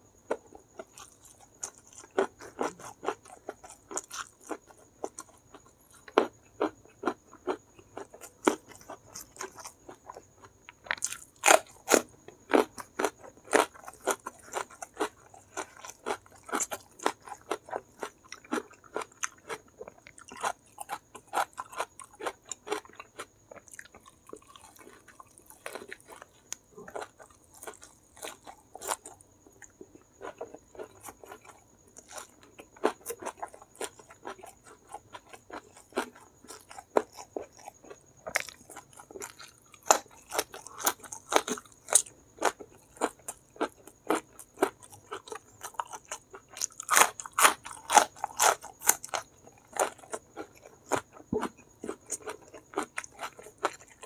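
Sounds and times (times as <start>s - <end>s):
chewing and crunching food: 0.0s - 54.0s.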